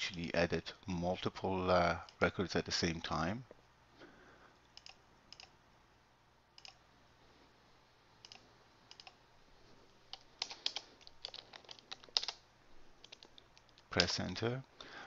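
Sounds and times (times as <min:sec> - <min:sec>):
keyboard keystrokes: 0:10.1 - 0:12.4.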